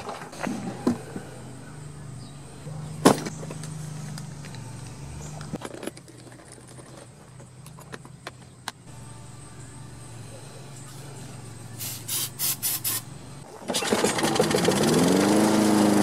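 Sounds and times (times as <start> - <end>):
steady low hum: 7.2 - 13.5.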